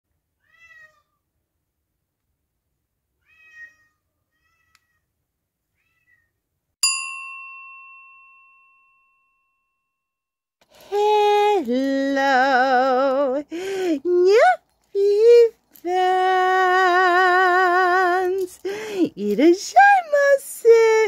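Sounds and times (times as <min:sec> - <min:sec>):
cat meowing: 0:00.4 - 0:01.2, 0:03.2 - 0:05.1, 0:05.7 - 0:06.3
bell chime ringing: 0:06.8 - 0:09.9.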